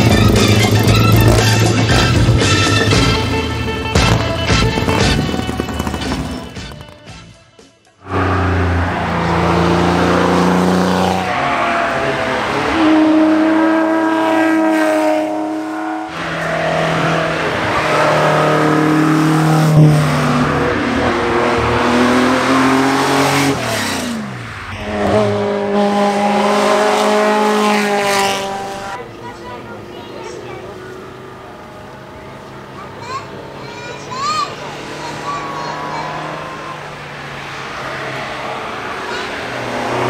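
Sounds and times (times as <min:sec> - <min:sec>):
racing car engine at full throttle: 0:00.0 - 0:07.3, 0:08.0 - 0:40.0
car passing by: 0:08.0 - 0:40.0.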